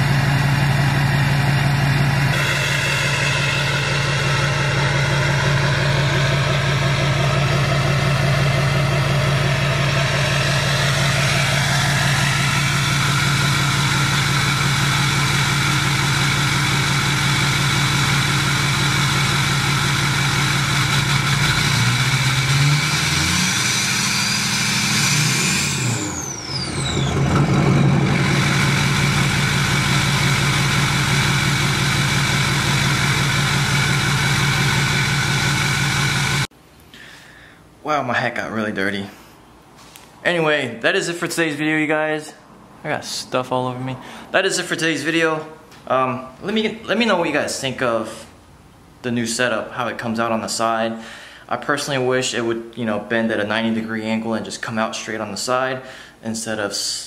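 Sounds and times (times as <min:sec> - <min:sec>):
diesel truck engine idling: 0:00.0 - 0:36.5
engine revving with turbo whistle: 0:00.0 - 0:36.5.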